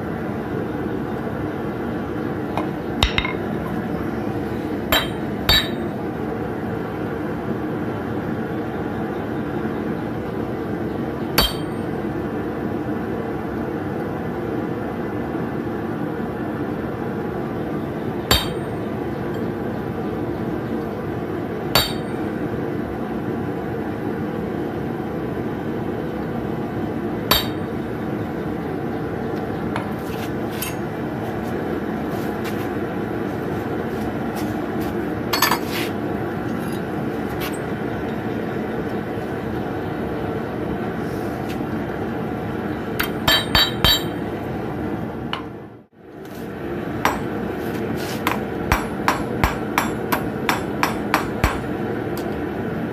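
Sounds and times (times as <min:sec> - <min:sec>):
hammer striking steel on anvil: 0:02.6 - 0:03.5, 0:04.9 - 0:05.9, 0:11.4 - 0:11.9, 0:18.3 - 0:18.8, 0:21.8 - 0:22.3, 0:27.3 - 0:27.7, 0:43.0 - 0:44.2, 0:47.0 - 0:47.4, 0:48.2 - 0:51.7.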